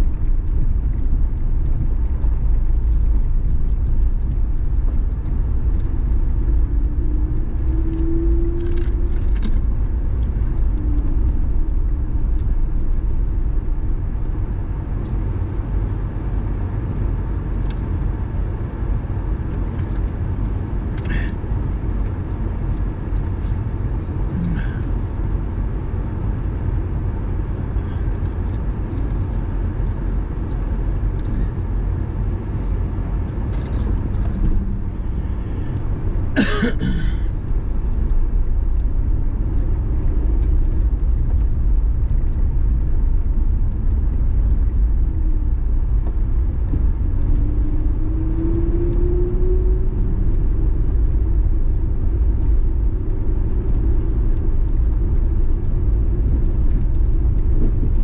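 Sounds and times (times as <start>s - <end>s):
car engine and road rumble: 0.0s - 58.0s
faint rising engine tone: 33.7s - 36.4s, 37.0s - 54.8s.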